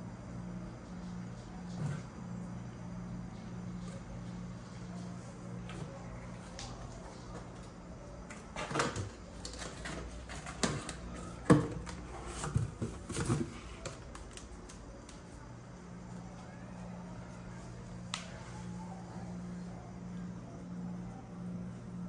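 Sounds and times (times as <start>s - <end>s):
cats pawing cardboard box: 9.6s - 14.5s.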